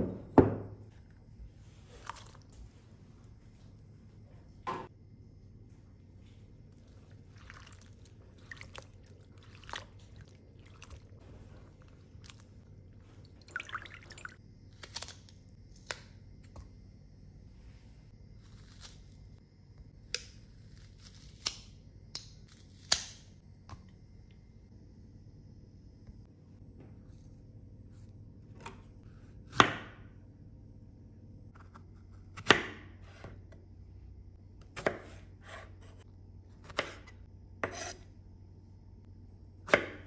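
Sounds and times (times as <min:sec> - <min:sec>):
water dripping and splashing in bowl: 0:07.3 - 0:11.2, 0:13.2 - 0:14.4.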